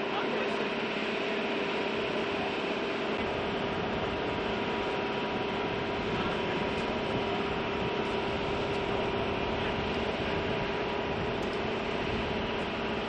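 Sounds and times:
military aircraft engine drone: 0.0 - 13.0.

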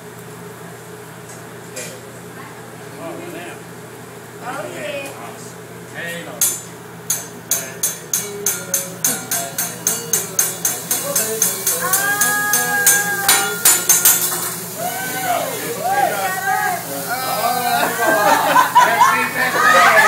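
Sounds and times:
metal spatula clanging on griddle: 6.4 - 14.8.

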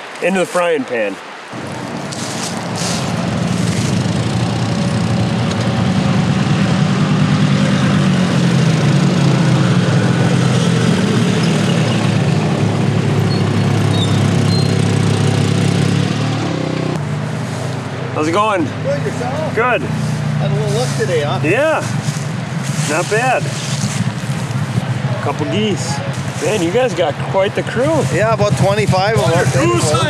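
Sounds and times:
atv engines idling: 1.5 - 30.0.

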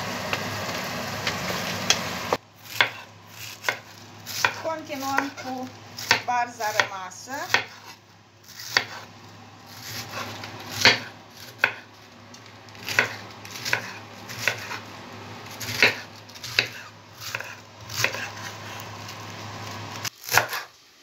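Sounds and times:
knife chopping cabbage on board: 2.6 - 9.0, 9.7 - 11.9, 12.8 - 14.8, 15.5 - 18.6, 20.2 - 20.7.

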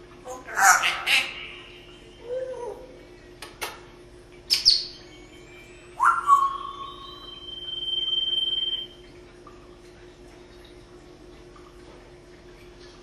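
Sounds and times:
parrot high whistle: 4.5 - 9.0.

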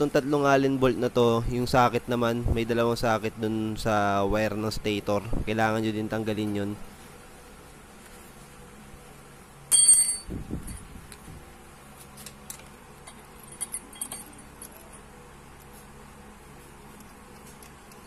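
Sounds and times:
bright metallic clink: 9.7 - 10.8
tools clinking on metal: 9.7 - 10.8, 12.5 - 15.1.

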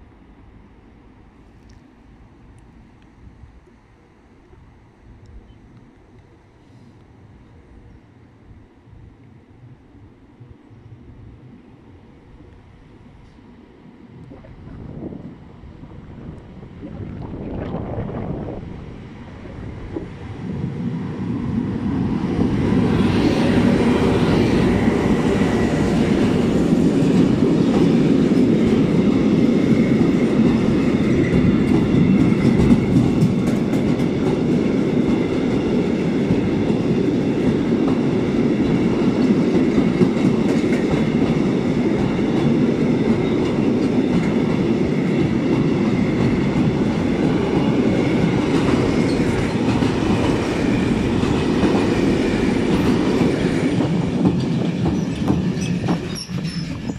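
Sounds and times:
train wheels rumbling on rails: 8.8 - 56.9
faint high wheel squeal: 55.0 - 56.9.

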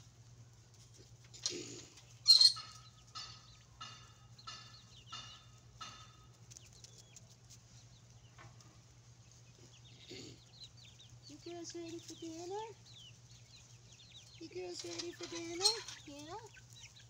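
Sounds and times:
chickens calling: 0.0 - 17.0
chicken squawk: 2.1 - 3.0.

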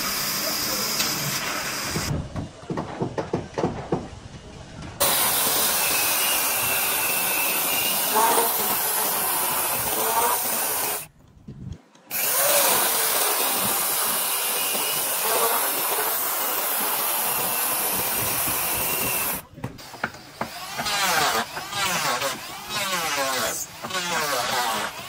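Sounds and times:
electric chainsaw cutting wood: 5.0 - 11.1, 12.1 - 25.0.

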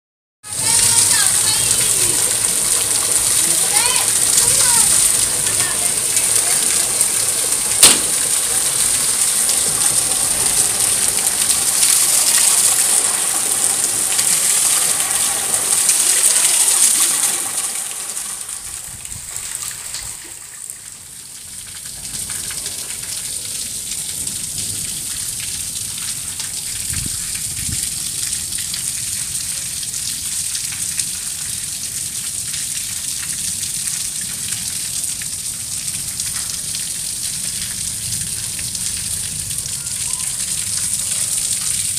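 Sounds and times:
heavy rain splashing on water: 0.4 - 41.9
sharp click: 7.8 - 8.1.

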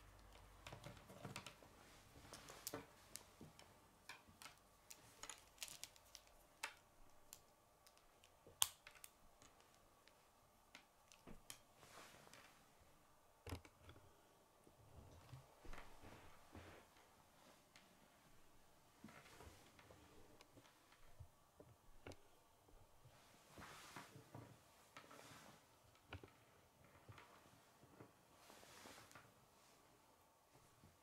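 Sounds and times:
plastic pieces clicking: 2.6 - 11.6.

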